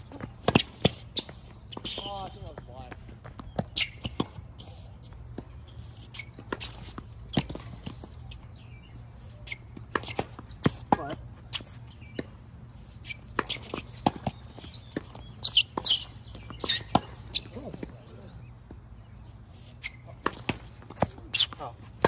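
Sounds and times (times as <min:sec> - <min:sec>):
quick footsteps on hard court: 0:00.0 - 0:04.4
tennis ball bouncing: 0:00.0 - 0:04.5, 0:05.3 - 0:08.3, 0:09.5 - 0:18.0, 0:19.8 - 0:22.0
racket striking tennis ball: 0:09.8 - 0:12.3.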